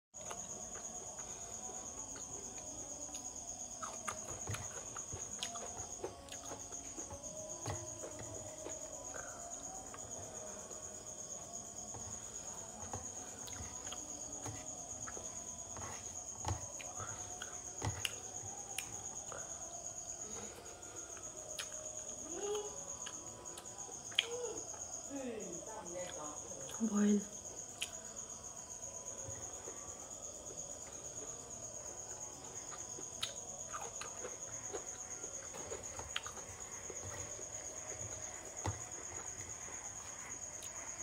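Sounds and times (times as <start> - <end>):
crickets chirring: 0.2 - 41.0.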